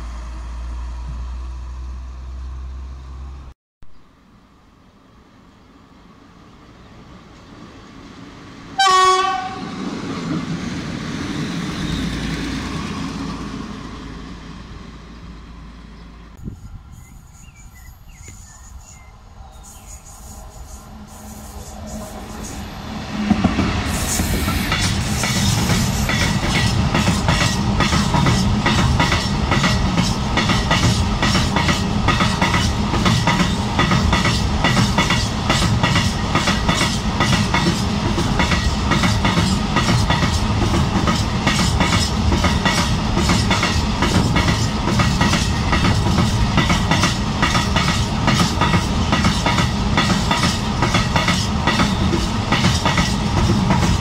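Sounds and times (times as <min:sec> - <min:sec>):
diesel locomotive engine: 0:00.0 - 0:03.5, 0:04.2 - 0:54.0
train wheels clacking over rail joints: 0:23.2 - 0:54.0.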